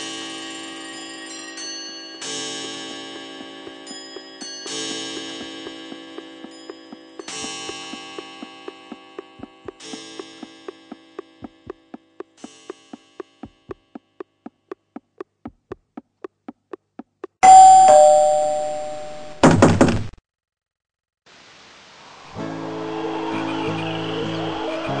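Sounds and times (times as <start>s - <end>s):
clock ticking: 5.0s - 18.2s
faint chimes: 17.4s - 19.4s
two-tone doorbell: 17.4s - 19.4s.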